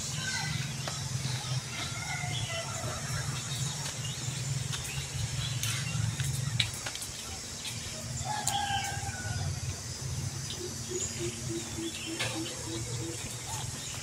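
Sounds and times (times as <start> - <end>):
bird calls: 10.4 - 14.0.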